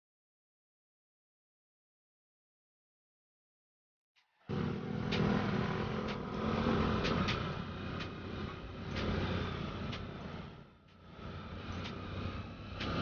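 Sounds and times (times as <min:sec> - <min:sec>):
motorcycle engine running: 0:04.4 - 0:13.0.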